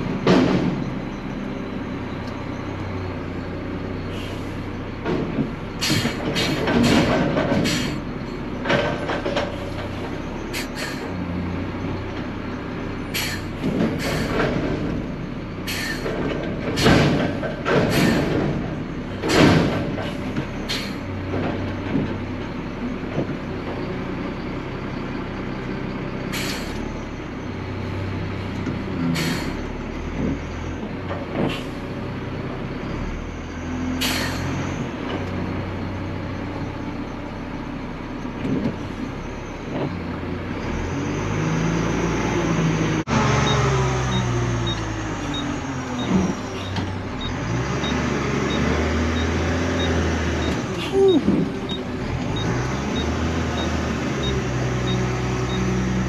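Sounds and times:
loud clanks and rattles: 0:00.0 - 0:01.2, 0:04.9 - 0:10.2, 0:13.2 - 0:23.9
truck engine drone: 0:00.0 - 0:56.0.

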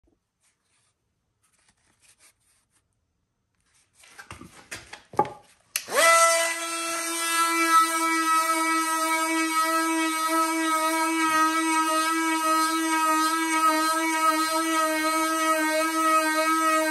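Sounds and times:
oscillating multi-tool motor running: 0:05.9 - 0:16.9.

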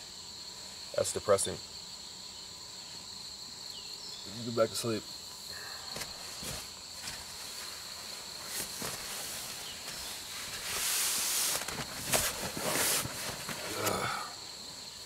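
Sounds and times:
night insects trilling: 0:00.0 - 0:15.0
hammock fabric rustling: 0:06.0 - 0:14.4.

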